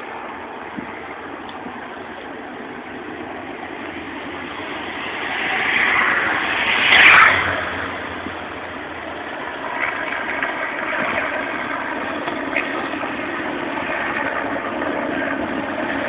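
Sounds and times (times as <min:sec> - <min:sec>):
motorcycles riding past: 0:03.5 - 0:16.0.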